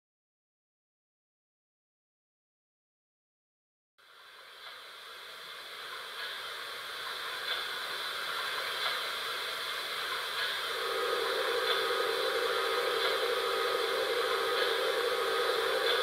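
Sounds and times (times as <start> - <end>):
steam hiss through speaker: 4.0 - 16.0.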